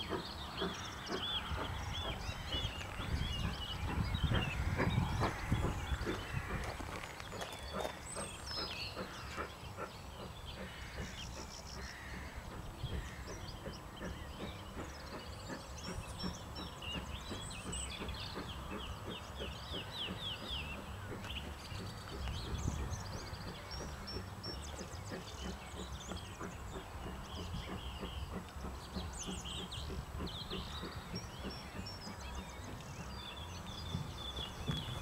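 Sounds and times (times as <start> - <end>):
distant steam locomotive exhaust: 0.0 - 35.0
songbirds chirping and trilling: 0.0 - 35.0.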